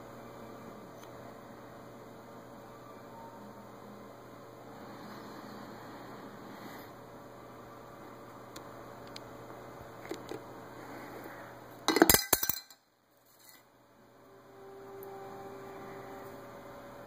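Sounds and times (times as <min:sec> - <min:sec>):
metal clinking against acrylic: 0:11.9 - 0:12.8.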